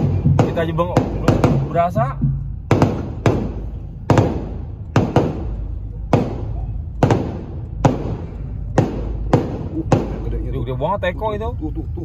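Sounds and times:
firecrackers exploding: 2.7s - 10.2s.

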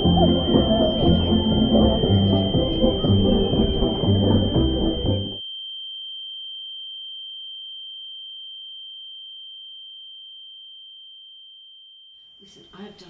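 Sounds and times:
high-pitched pure tone: 0.0s - 5.6s.

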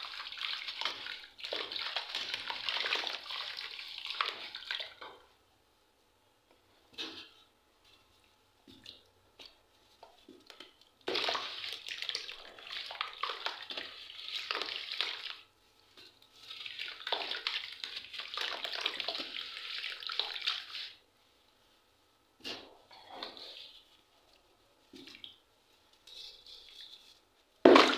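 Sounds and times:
charcoal crackling and fizzing in water: 0.0s - 5.2s, 10.3s - 21.0s.

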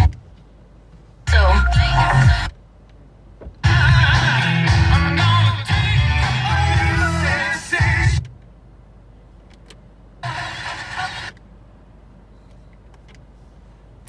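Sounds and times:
car stereo music: 0.0s - 0.3s, 1.2s - 2.6s, 3.6s - 8.4s, 10.2s - 11.4s
low rumble in car cabin: 0.0s - 14.0s.

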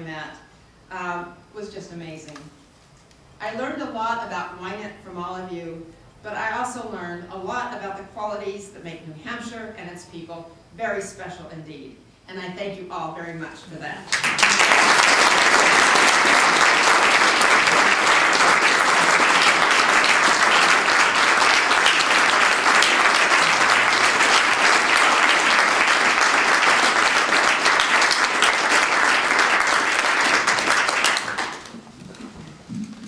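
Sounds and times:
audience applauding: 14.1s - 32.2s.

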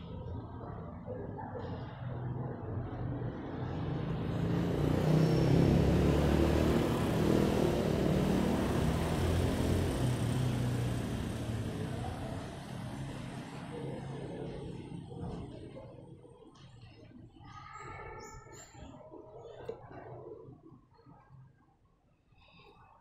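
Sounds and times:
motor vehicle passing: 1.7s - 16.2s.

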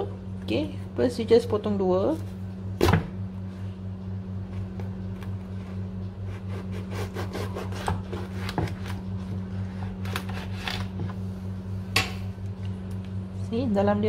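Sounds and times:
steady low hum: 0.0s - 14.0s
knife cutting fruit rind: 4.6s - 11.2s.

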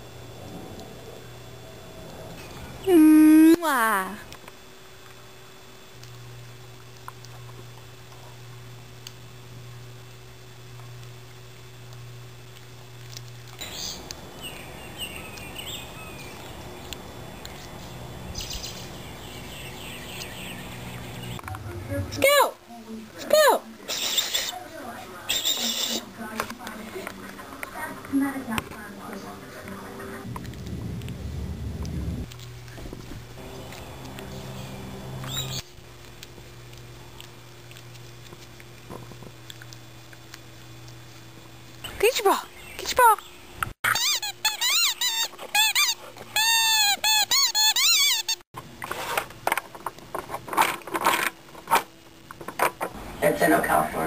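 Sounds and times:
steady low hum: 0.0s - 47.3s, 47.9s - 54.0s
outdoor background noise: 0.0s - 54.0s
birds chirping: 13.6s - 21.4s, 33.4s - 35.7s, 41.8s - 43.7s.

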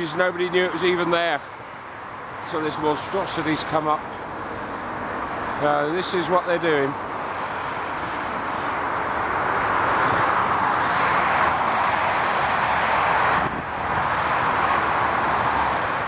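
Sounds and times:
motorway traffic rushing past: 0.0s - 16.0s.

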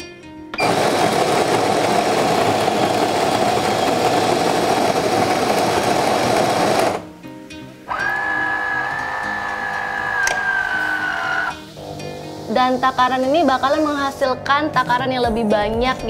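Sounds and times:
coffee grinder grinding beans: 0.6s - 7.1s.

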